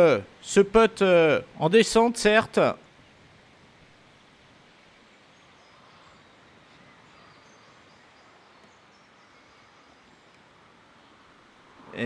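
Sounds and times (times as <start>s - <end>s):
faint bird chirps: 5.0s - 12.0s.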